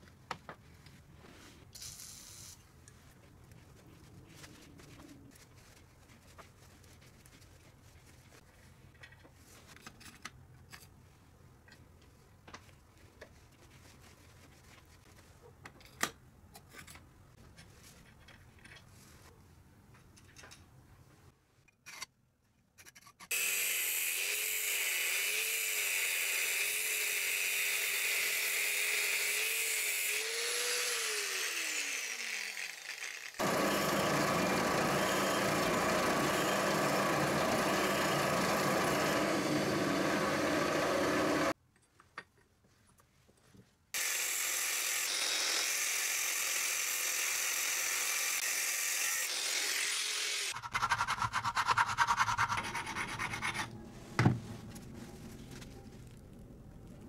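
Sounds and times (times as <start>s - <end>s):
power tool motor whining: 30.0s - 41.5s
rough grinding noise: 31.9s - 41.5s.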